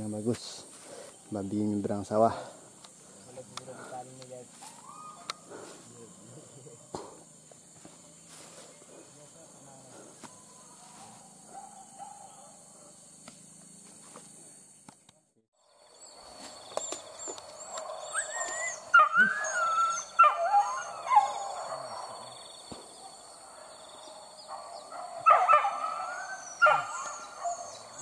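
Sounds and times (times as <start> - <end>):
dogs whining and yelping: 16.8 - 22.2, 24.6 - 28.0.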